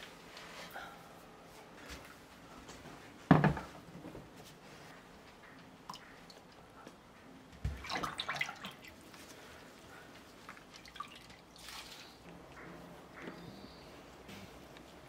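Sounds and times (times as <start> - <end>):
hand splashing water in basin: 7.7 - 9.0.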